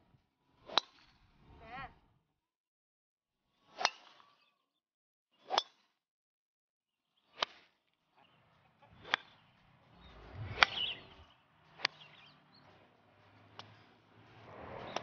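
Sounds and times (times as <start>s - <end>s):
golf clubs striking balls: 0.6s - 1.2s, 8.3s - 14.0s.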